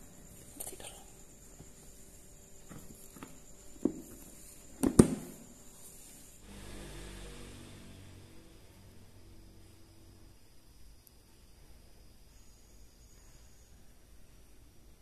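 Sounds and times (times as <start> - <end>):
faint low hum: 0.0 - 15.0
knocks: 4.8 - 5.4.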